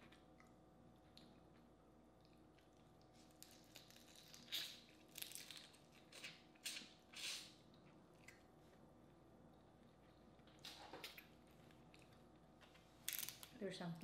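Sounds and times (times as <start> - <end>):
biting and sucking on shells: 3.1 - 7.6.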